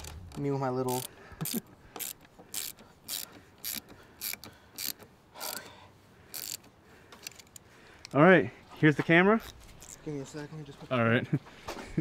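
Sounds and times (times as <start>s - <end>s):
ratchet wrench clicking: 0.0s - 5.7s, 6.3s - 8.2s.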